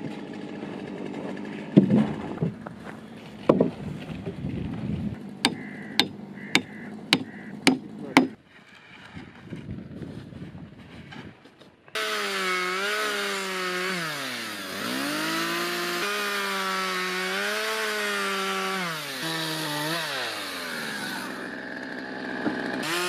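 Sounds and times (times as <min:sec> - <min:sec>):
heavy wooden knocks: 0:03.5 - 0:03.8, 0:05.4 - 0:08.4
hammer striking timber: 0:05.4 - 0:08.4.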